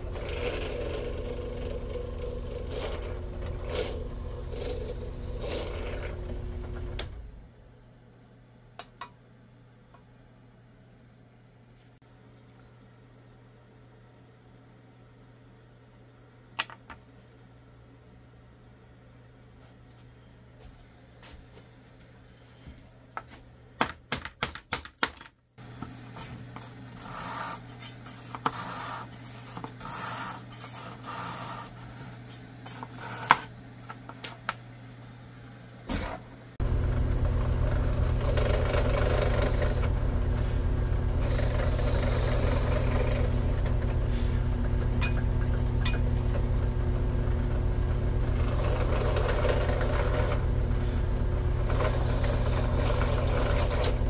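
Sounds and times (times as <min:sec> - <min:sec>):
drill press boring into wood: 0:37.0 - 0:40.0, 0:41.2 - 0:43.9, 0:48.2 - 0:50.6, 0:51.5 - 0:54.0.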